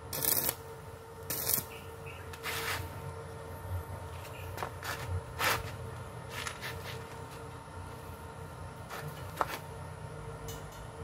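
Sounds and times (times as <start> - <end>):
welding arc crackling: 0.0 - 2.9
electrical hum: 0.0 - 11.0.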